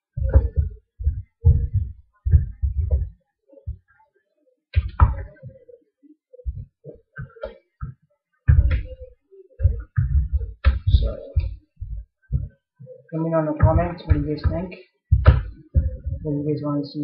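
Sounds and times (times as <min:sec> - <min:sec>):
dull thumps of hands mixing: 0:00.0 - 0:03.9, 0:06.5 - 0:12.6, 0:13.2 - 0:16.3.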